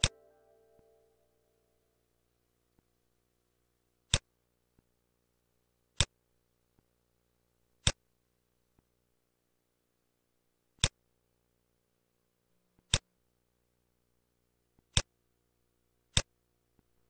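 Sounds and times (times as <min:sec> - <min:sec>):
faint steady hum: 0:00.0 - 0:17.0
computer mouse clicks: 0:12.8 - 0:13.0.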